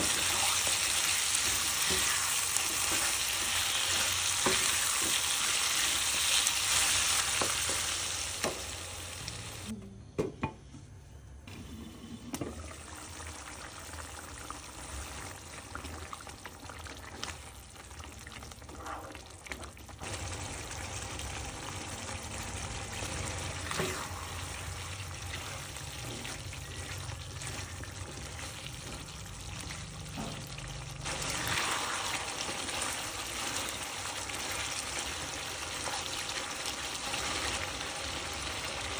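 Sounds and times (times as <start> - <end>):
chicken sizzling in a pan: 0.0 - 9.7, 20.0 - 38.9.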